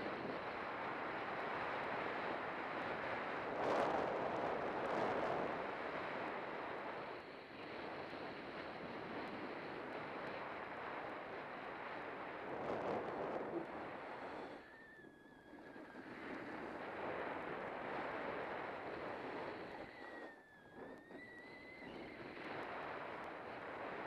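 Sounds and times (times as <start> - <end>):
wind buffeting microphone: 8.5 - 14.7.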